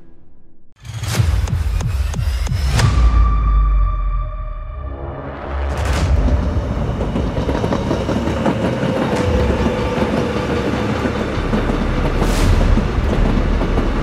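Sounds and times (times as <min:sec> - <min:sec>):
train rail rumble and clatter: 0:05.7 - 0:14.0.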